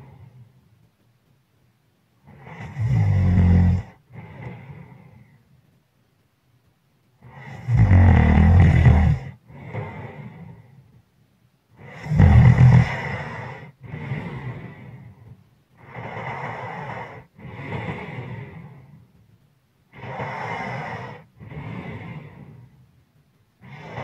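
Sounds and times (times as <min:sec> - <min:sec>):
person snoring: 0:02.3 - 0:05.2, 0:07.2 - 0:10.6, 0:11.8 - 0:15.0, 0:15.8 - 0:18.8, 0:19.9 - 0:22.6, 0:23.6 - 0:24.0
breathy exhale: 0:12.8 - 0:19.0, 0:19.9 - 0:22.8, 0:23.6 - 0:24.0.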